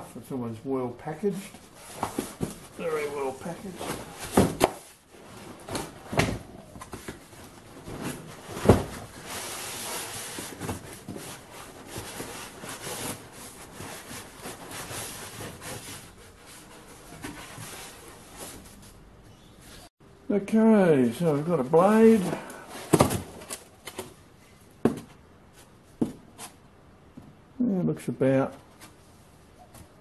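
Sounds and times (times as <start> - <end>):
cardboard boxes scraping: 1.4 - 18.9, 22.0 - 23.6
box thuds: 3.8 - 4.9, 8.0 - 9.1, 22.8 - 23.6, 24.8 - 25.1.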